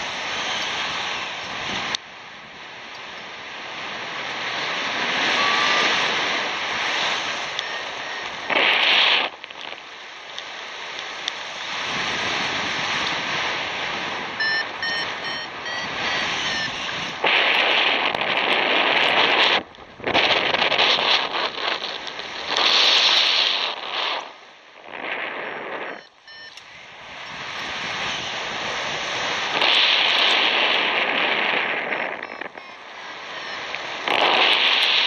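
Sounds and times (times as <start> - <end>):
wind noise on microphone: 0.0 - 35.0
short beeps: 5.3 - 6.0, 7.6 - 8.6, 14.4 - 16.8, 25.9 - 26.7, 32.2 - 33.8.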